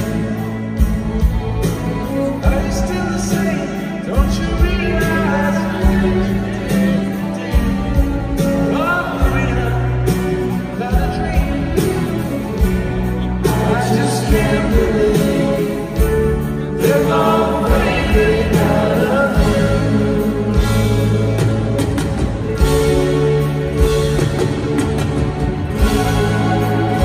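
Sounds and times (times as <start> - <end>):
person singing: 0.0 - 21.7
strummed acoustic guitars: 0.0 - 27.0
harmonised backing vocals: 13.4 - 21.8.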